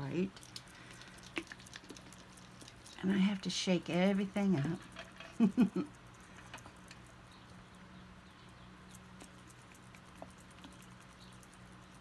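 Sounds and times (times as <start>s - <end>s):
faint low hum: 0.0s - 12.0s
paint bottles ticking: 0.3s - 3.4s.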